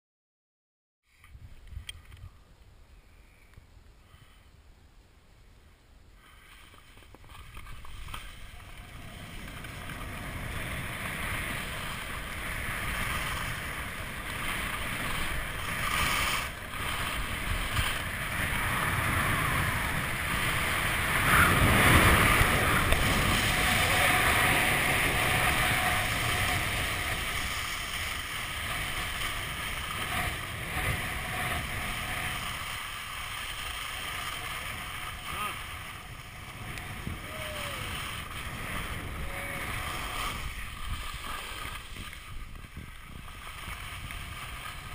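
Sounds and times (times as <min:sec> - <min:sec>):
skis scraping over snow: 0:06.2 - 0:44.9
wind rushing over microphone: 0:07.2 - 0:44.9.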